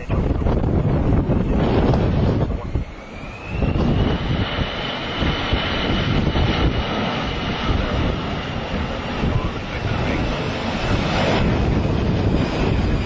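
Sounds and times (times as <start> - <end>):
engine rumble: 0.0 - 13.0
jet engine fan whine: 0.0 - 13.0
wind buffeting microphone: 0.0 - 13.0.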